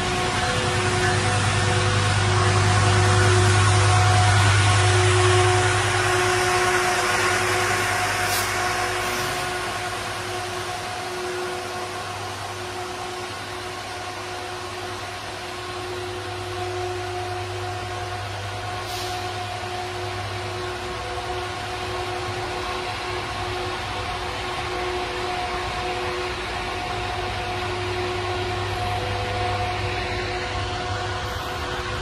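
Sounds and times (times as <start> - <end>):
diesel locomotive engine hum: 0.0 - 32.0
train coaches rumbling: 0.0 - 32.0.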